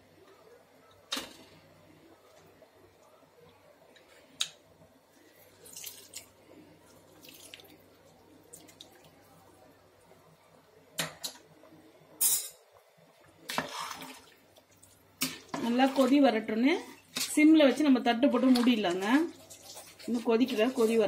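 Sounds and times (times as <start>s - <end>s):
juice dripping into liquid: 2.2s - 9.4s.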